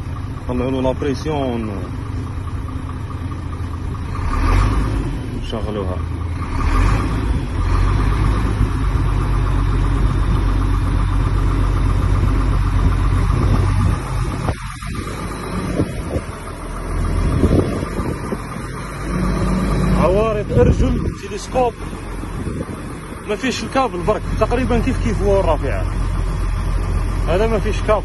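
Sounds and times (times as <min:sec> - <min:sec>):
diesel engine idling: 0:00.0 - 0:28.0
constant hum: 0:08.5 - 0:28.0.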